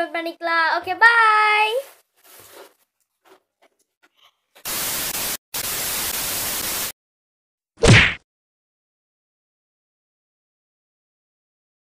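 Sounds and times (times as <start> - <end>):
tv static hiss: 4.6 - 6.9.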